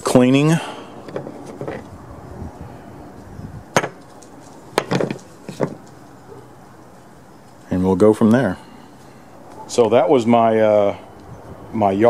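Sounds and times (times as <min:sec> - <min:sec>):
knocks and clatters on workbench: 0:01.1 - 0:01.8, 0:03.8 - 0:04.0, 0:04.8 - 0:05.8.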